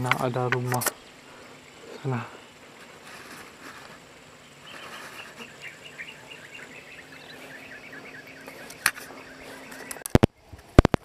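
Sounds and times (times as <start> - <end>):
high repeated chirping calls: 4.4 - 10.9.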